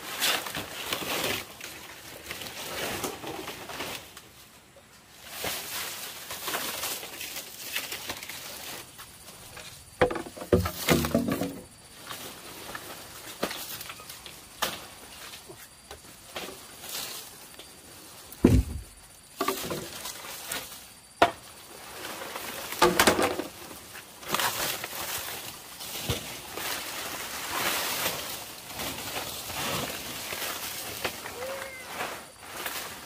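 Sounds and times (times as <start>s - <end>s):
rustling and scraping: 0.0s - 33.0s
knocks and thumps: 10.0s - 11.7s, 18.4s - 19.9s.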